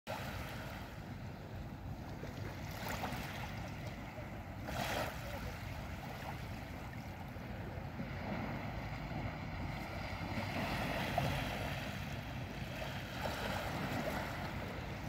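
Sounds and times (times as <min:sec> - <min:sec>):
waves lapping on shore: 0:00.1 - 0:15.0
steady low rumble: 0:05.4 - 0:15.0.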